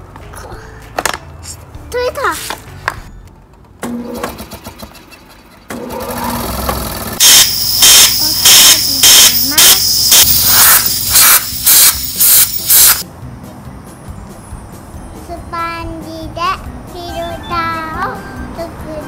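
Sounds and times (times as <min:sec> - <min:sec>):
air compressor humming: 0:05.7 - 0:13.0
air blow gun hissing blasts: 0:07.2 - 0:13.0.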